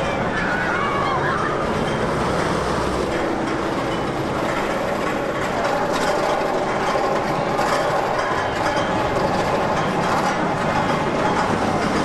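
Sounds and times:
roller coaster clattering and clicking: 0:00.0 - 0:12.0.

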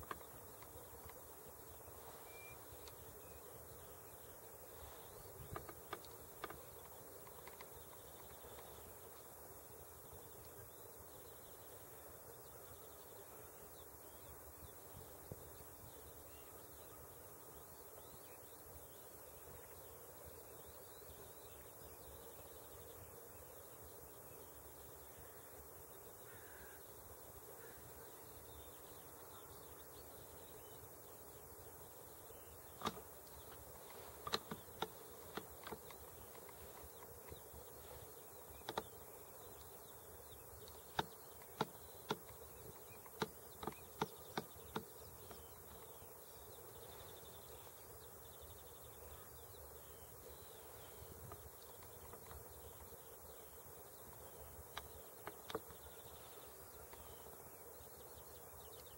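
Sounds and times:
outdoor background noise: 0:00.0 - 0:58.9
sharp short clicks: 0:32.7 - 0:37.4, 0:40.6 - 0:45.8.

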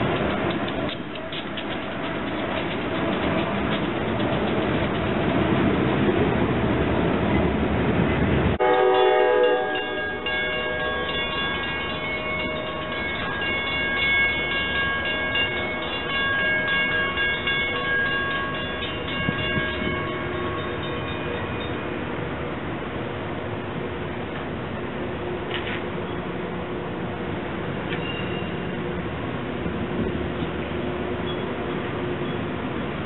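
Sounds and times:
train air horn chords: 0:08.6 - 0:11.0.

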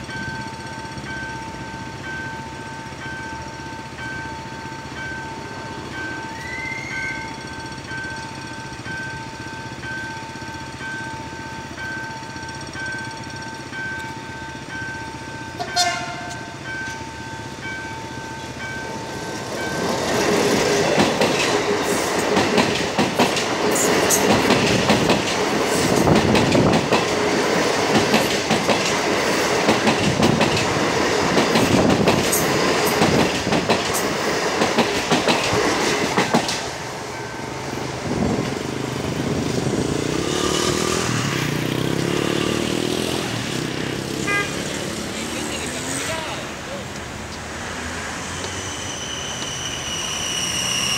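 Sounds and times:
level crossing warning bell: 0:00.0 - 0:20.9, 0:37.0 - 0:38.4
train rumbling past: 0:00.0 - 0:50.9
wheels clacking over rail joints: 0:07.4 - 0:44.2
train horn blast: 0:15.6 - 0:16.5, 0:44.2 - 0:45.0.

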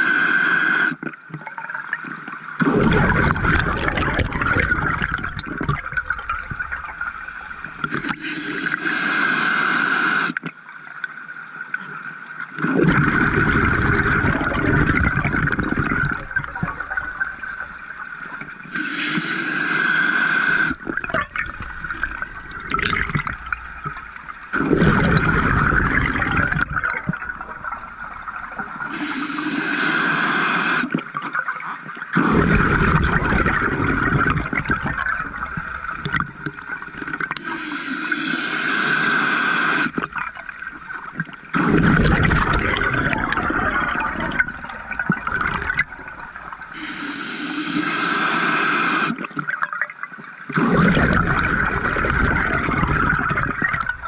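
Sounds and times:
regulator hissing inhale: 0:00.0 - 0:01.0, 0:07.2 - 0:10.4, 0:18.7 - 0:20.8, 0:28.9 - 0:30.9, 0:37.4 - 0:40.0, 0:46.7 - 0:49.2
exhaled bubbles gushing: 0:00.9 - 0:08.9, 0:12.5 - 0:54.0.

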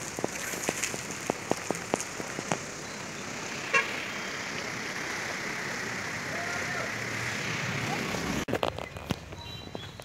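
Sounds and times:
raindrops tapping close by: 0:00.0 - 0:03.6
rushing water: 0:00.0 - 0:08.5
steady rain: 0:00.0 - 0:08.5.

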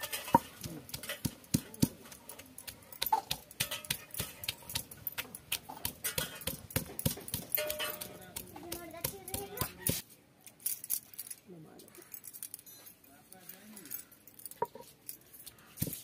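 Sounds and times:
pestle pounding on stone: 0:00.0 - 0:10.0.

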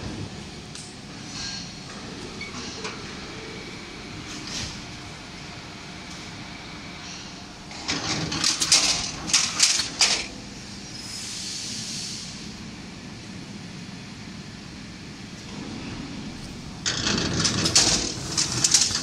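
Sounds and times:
loud scraping clatters: 0:16.8 - 0:19.0.

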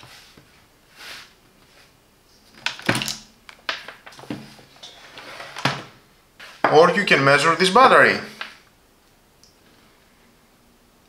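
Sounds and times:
soft rustle: 0:00.0 - 0:02.6.

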